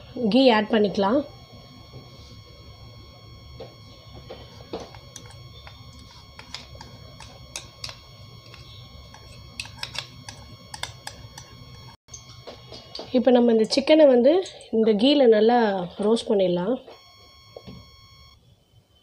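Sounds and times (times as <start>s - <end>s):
low steady hum: 0.0s - 19.0s
fat crackling and popping in pan: 1.4s - 14.8s.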